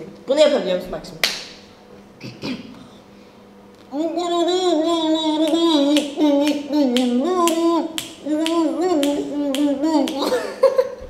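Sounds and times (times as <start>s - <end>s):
woman humming a wavering tune: 3.9s - 10.6s.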